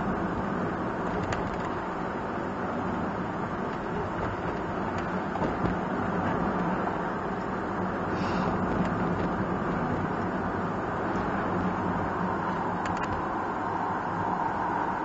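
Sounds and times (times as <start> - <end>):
road and engine rumble in van: 0.0 - 15.0
short hiss: 8.1 - 8.6.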